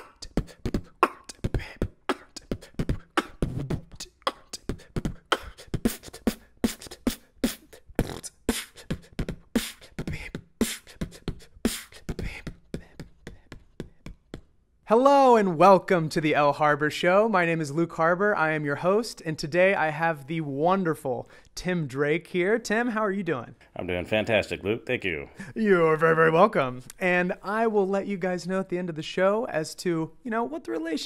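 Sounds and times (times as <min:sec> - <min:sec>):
beatboxing: 0:00.0 - 0:14.5.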